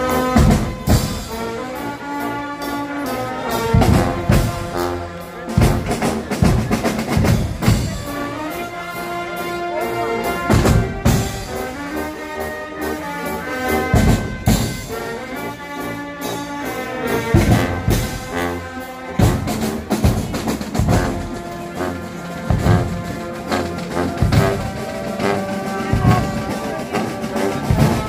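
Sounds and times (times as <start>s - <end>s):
brass band playing: 0.0s - 28.0s.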